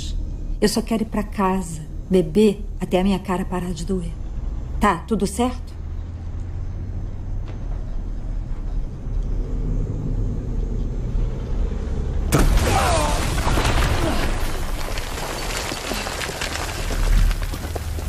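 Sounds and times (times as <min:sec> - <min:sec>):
low rumble: 0:00.0 - 0:18.0
explosion with debris: 0:12.3 - 0:18.0.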